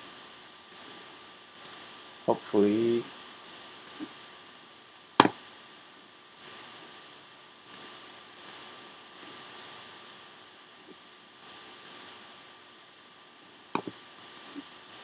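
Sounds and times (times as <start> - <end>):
faint hiss and hum: 0.0 - 15.0
computer mouse clicking: 1.6 - 1.8, 6.4 - 6.6, 7.7 - 8.6, 9.2 - 9.7, 13.8 - 15.0.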